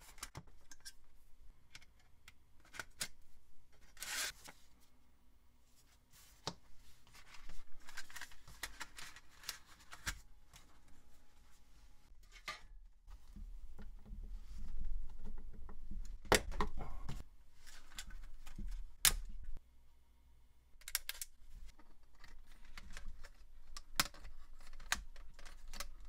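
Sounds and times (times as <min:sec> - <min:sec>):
plastic rustling: 0:07.0 - 0:10.3.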